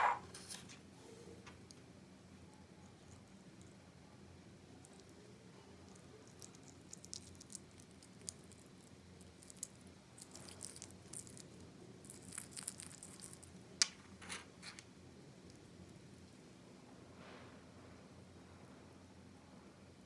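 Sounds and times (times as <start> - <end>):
slime crackling and squelching: 5.9 - 13.6.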